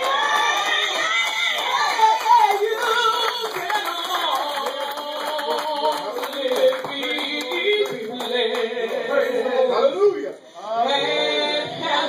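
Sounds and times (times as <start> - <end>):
hands clapping: 0.0 - 9.1
group singing gospel: 0.0 - 12.0.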